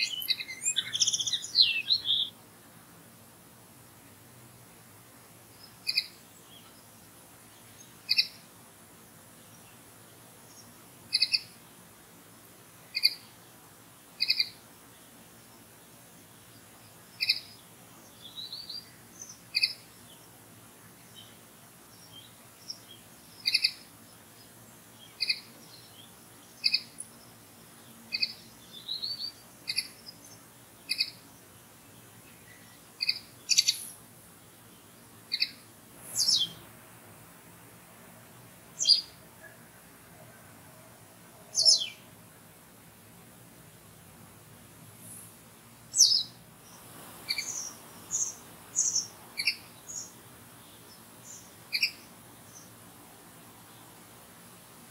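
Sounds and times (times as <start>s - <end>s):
bird twittering: 0.0s - 2.3s, 23.4s - 23.8s, 30.9s - 31.2s, 33.0s - 33.9s, 35.3s - 35.6s, 36.2s - 36.6s, 38.8s - 39.1s, 41.5s - 42.0s, 45.9s - 46.3s, 47.3s - 50.1s, 51.3s - 52.1s
songbird call notes: 0.0s - 2.4s, 5.5s - 8.5s, 9.4s - 11.6s, 12.9s - 13.4s, 14.2s - 36.6s, 38.7s - 42.2s, 45.8s - 52.8s.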